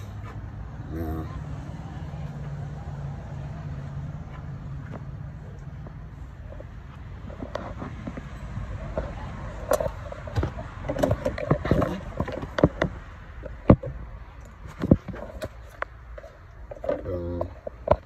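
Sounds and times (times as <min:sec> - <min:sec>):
handling clicks and knocks: 0:07.3 - 0:18.0.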